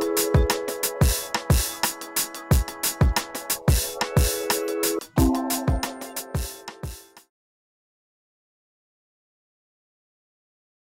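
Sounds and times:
electronic drum hit: 5.2s - 7.1s.

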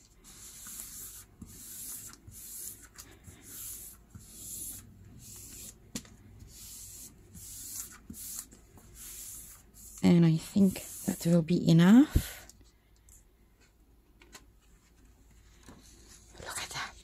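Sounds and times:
hands rubbing paper: 0.0s - 5.8s, 6.4s - 11.4s.

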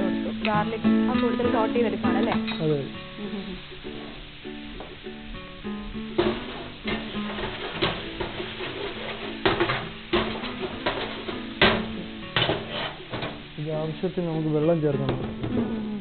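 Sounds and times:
acoustic guitar music: 0.0s - 16.0s
metal spatula scraping frying pan: 6.2s - 13.5s.

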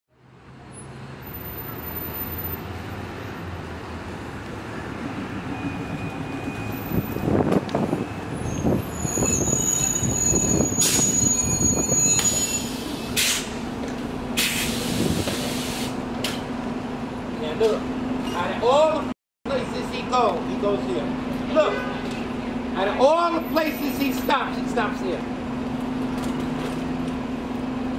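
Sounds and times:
high brake squeal: 1.2s - 2.8s, 5.3s - 7.3s, 8.0s - 13.6s
bus engine humming: 1.2s - 27.9s
short air hisses: 13.2s - 13.6s, 14.4s - 16.0s.

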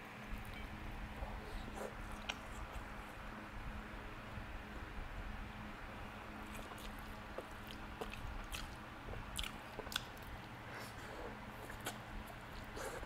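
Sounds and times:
person chewing noodles: 6.4s - 13.0s.

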